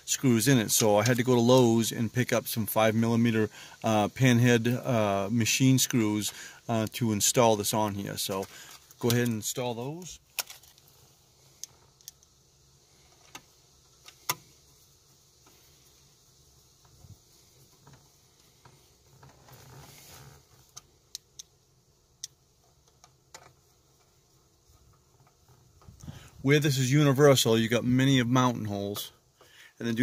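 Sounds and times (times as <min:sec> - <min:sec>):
soft handling noise: 0:05.6 - 0:21.6, 0:22.3 - 0:28.3.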